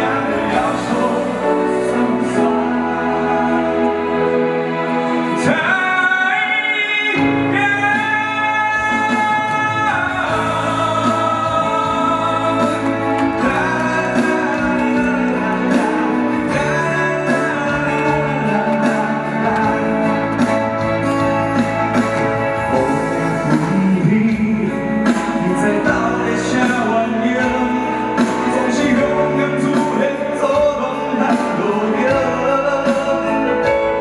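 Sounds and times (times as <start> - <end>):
keyboard accompaniment: 0.0 - 34.0
man singing into a microphone: 0.0 - 34.0.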